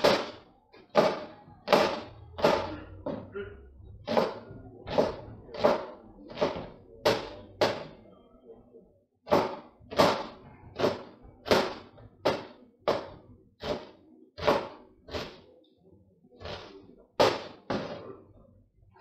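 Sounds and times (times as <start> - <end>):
knife chopping on cutting board: 4.0 - 8.0, 9.3 - 15.4, 16.4 - 18.0.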